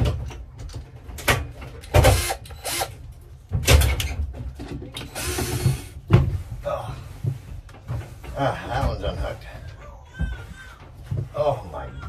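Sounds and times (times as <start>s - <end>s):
cordless drill running: 2.0s - 3.0s, 5.1s - 5.9s.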